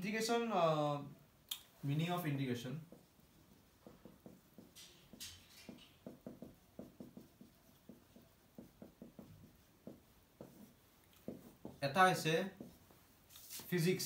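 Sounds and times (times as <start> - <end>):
pen writing on paper: 6.0 - 10.7.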